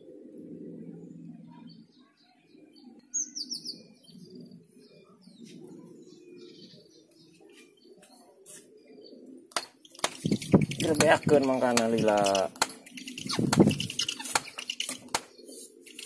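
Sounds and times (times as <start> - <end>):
small songbirds chirping: 0.0 - 16.0.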